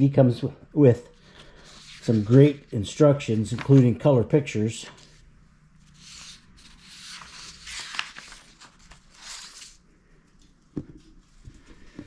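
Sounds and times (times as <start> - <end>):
paper rustling: 1.2 - 4.1, 5.8 - 12.0
paper crinkle: 1.4 - 4.0, 5.8 - 9.8.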